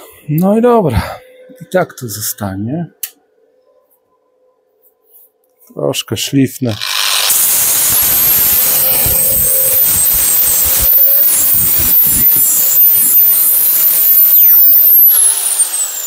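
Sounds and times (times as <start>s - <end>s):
angle grinder grinding steel: 6.7s - 16.0s.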